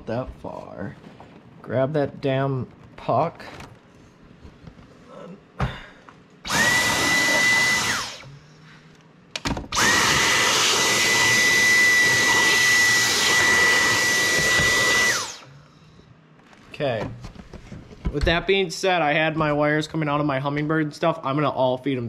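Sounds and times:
stick vacuum whining: 6.4s - 8.3s, 9.7s - 15.5s.

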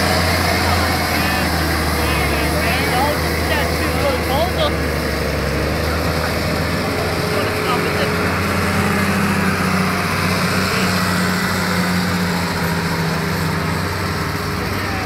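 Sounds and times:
tractor diesel engine under load: 0.0s - 15.0s.

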